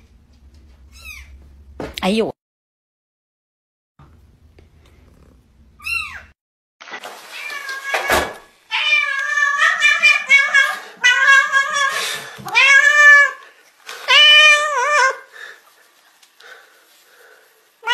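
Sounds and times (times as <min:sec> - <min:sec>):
cat meowing loudly: 0:07.3 - 0:13.4, 0:14.1 - 0:15.2.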